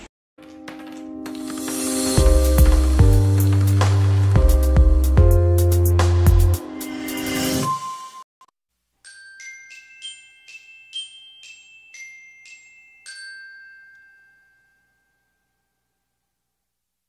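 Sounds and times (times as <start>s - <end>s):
bell-like mallet percussion jingle: 9.0s - 16.2s.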